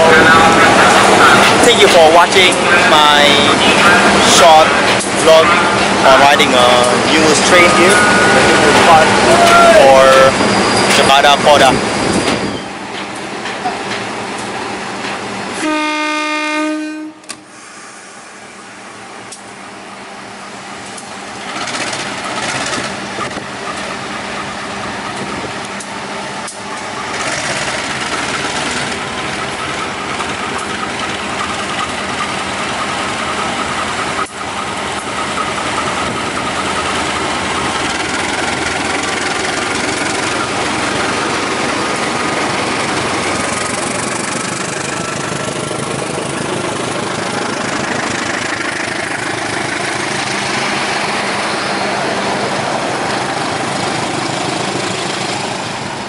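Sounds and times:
locomotive horn blast: 0.0s - 10.4s, 15.5s - 18.1s
locomotive engine noise: 0.0s - 56.0s.

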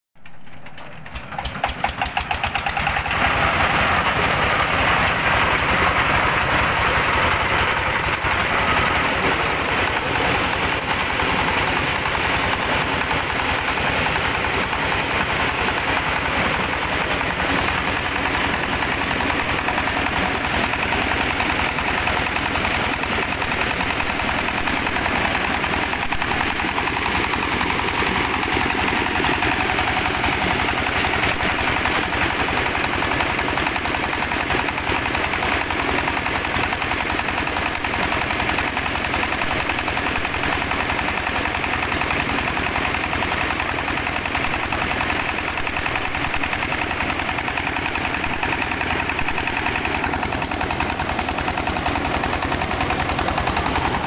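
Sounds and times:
threshing drum turning: 0.2s - 36.6s
diesel engine knocking: 0.2s - 54.0s.

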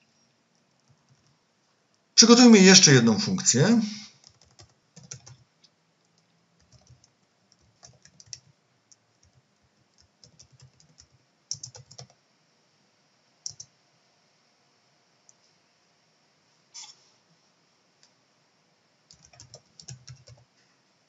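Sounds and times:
computer keyboard typing: 0.7s - 1.4s, 4.2s - 5.4s, 6.0s - 12.2s, 13.4s - 13.7s, 19.1s - 20.4s.

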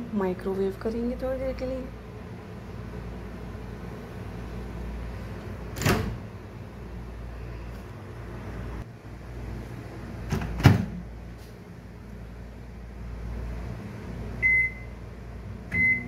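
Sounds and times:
steady low hum: 0.0s - 16.0s
microwave door clunking shut: 10.3s - 11.0s.

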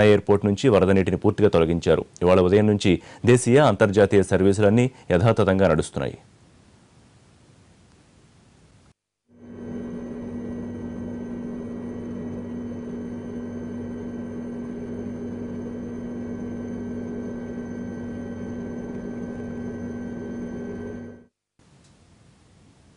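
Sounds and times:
noisy hum: 6.2s - 22.9s
low mechanical drone: 9.4s - 21.3s.

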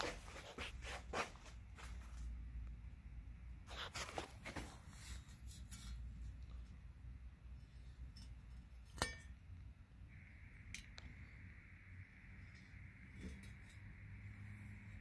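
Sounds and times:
sharp metallic clink: 8.2s - 9.4s.

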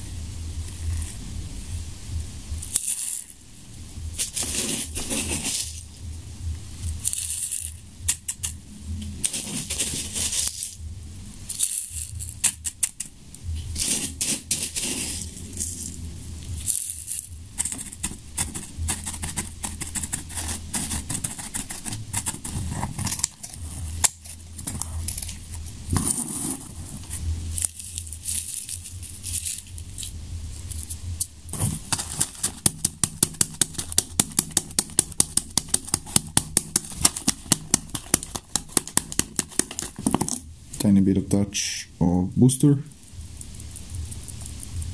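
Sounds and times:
tissue paper rustling: 4.1s - 5.9s, 9.2s - 10.8s, 13.6s - 40.3s
knife scraping paper: 4.2s - 5.8s, 9.2s - 10.8s, 13.7s - 15.8s, 17.0s - 30.1s, 31.5s - 34.9s
sharp rhythmic clicks: 16.5s - 25.2s, 32.0s - 41.4s.

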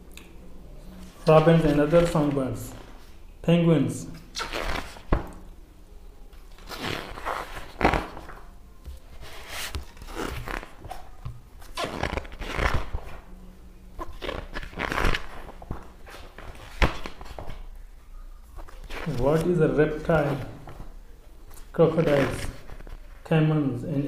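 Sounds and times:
book pages turning: 0.9s - 3.2s, 4.4s - 5.4s, 6.4s - 13.3s, 14.0s - 17.8s, 18.5s - 23.3s.

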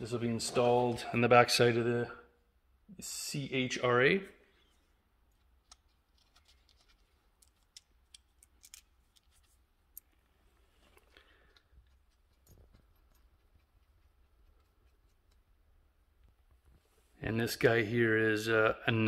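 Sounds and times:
small metal parts clicking: 5.3s - 10.2s.

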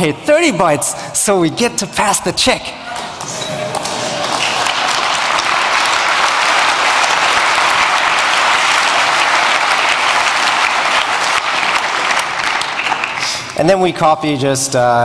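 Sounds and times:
large audience applauding: 3.0s - 13.7s.

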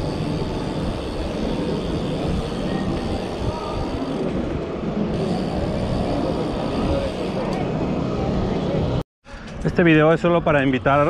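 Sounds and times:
wind on microphone: 0.0s - 8.7s.

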